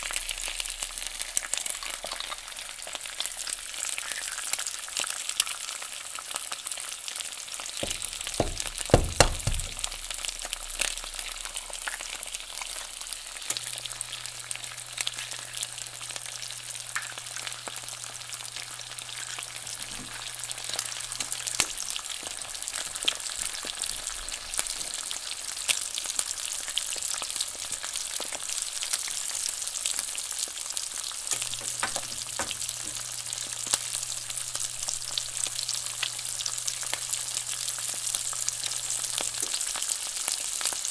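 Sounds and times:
eggs sizzling in hot oil: 0.0 - 40.9
egg cracking knocks: 7.8 - 10.1, 31.4 - 33.6.

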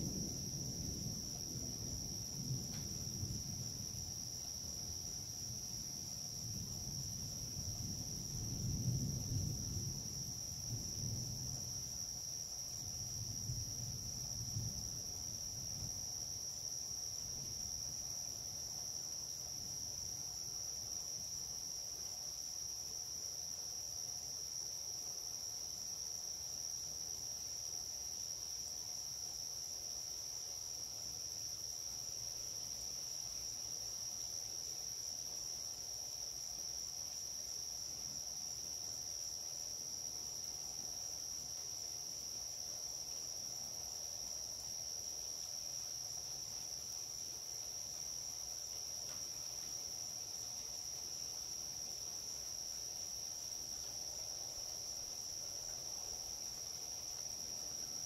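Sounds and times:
night insects chirring: 0.0 - 58.0.

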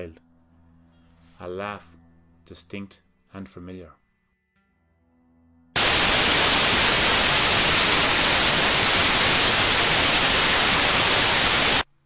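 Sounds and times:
television static hiss: 5.8 - 11.9.

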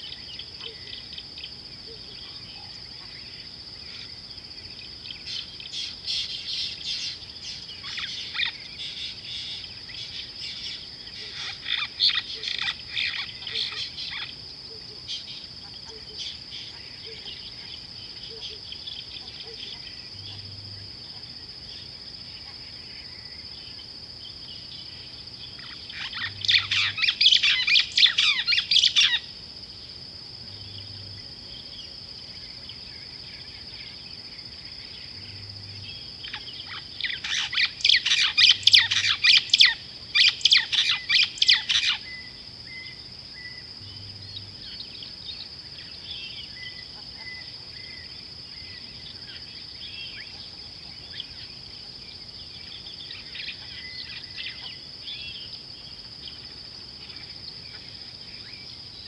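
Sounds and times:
high-pitched insect drone: 25.2 - 29.4, 32.4 - 50.3.

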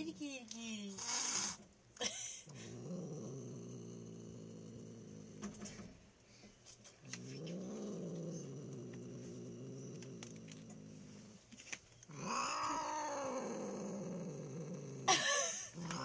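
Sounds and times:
cat growling and yowling: 12.1 - 16.0.

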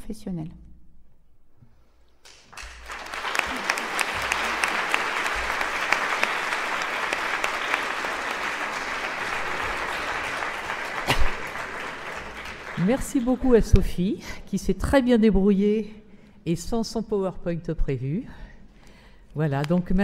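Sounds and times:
audience applauding: 2.3 - 13.8.

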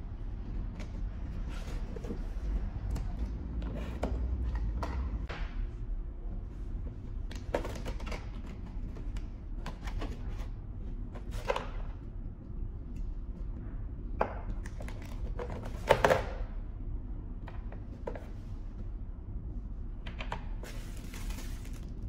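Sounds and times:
steady low hum: 0.0 - 22.0
plastic packaging rustling: 20.6 - 22.0.

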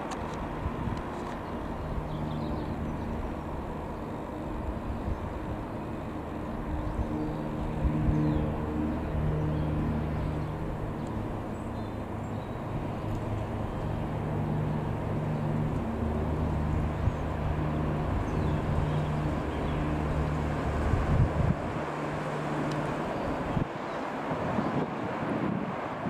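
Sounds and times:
light aircraft engine droning: 0.0 - 26.0
wind bumps on microphone: 20.8 - 21.9, 23.4 - 26.0.

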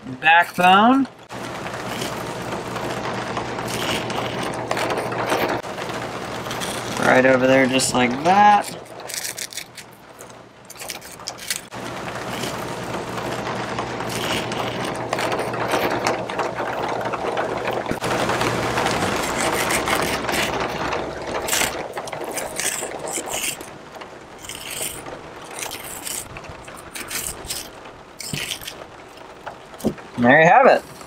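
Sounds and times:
low mechanical hum: 0.0 - 31.0
clicks and scrapes: 0.6 - 30.2.

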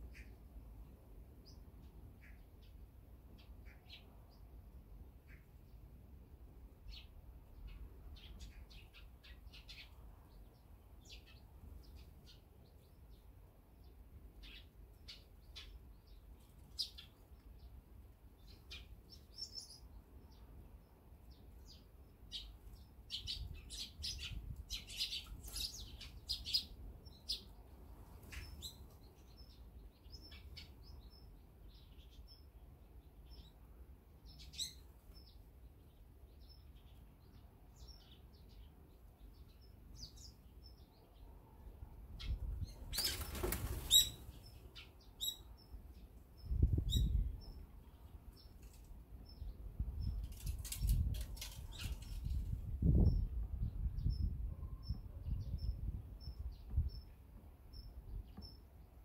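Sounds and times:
sparrows chirping: 0.0 - 59.0
wings flapping: 42.9 - 44.2.

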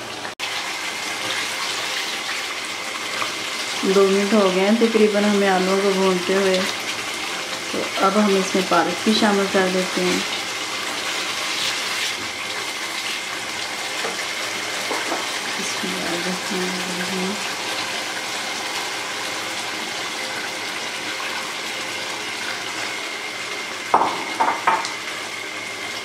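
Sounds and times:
curry sizzling in a pan: 0.0 - 26.0
spatula knocking on pan: 14.8 - 15.3, 23.9 - 25.0.

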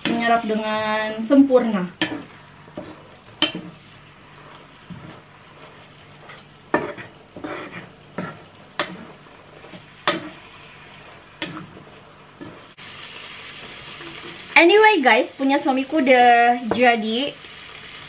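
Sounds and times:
chicken sizzling in a frying pan: 0.0 - 18.0
spatula knocking and scraping pan: 2.0 - 10.6, 11.4 - 12.7, 16.6 - 17.0.

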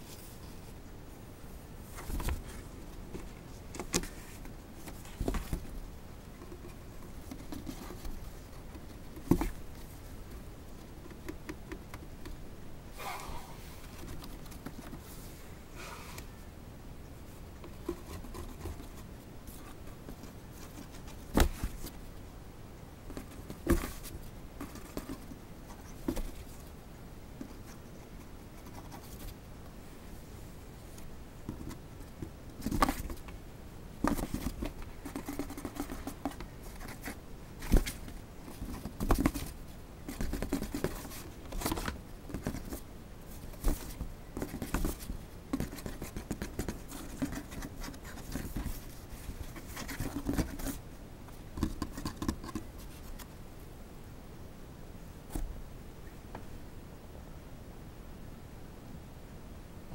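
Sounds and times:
fingers scratching cardboard: 34.0 - 42.8, 43.5 - 50.8, 51.6 - 53.3.

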